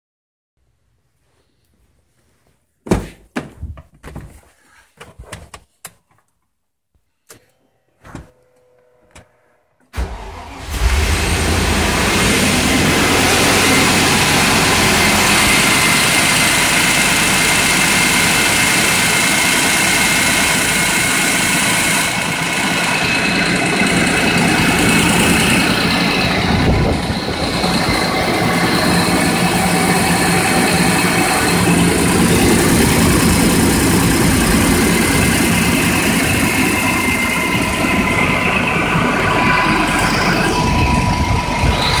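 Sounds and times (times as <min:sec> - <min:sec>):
car engine idling: 0:10.0 - 0:42.0.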